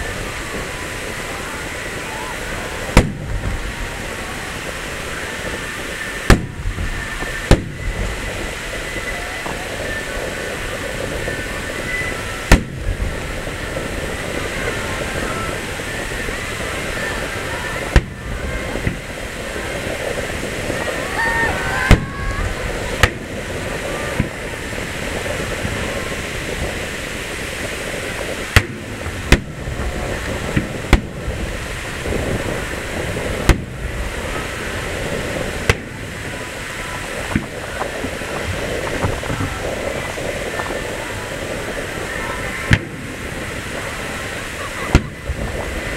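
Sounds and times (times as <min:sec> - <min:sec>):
crowd noise: 0:00.0 - 0:45.9
fireworks booming: 0:00.0 - 0:45.9
surf: 0:00.0 - 0:45.9.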